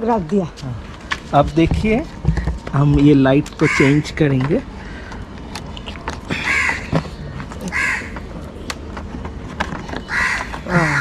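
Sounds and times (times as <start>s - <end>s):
crows cawing: 3.5s - 5.3s, 6.2s - 8.4s, 10.0s - 11.0s.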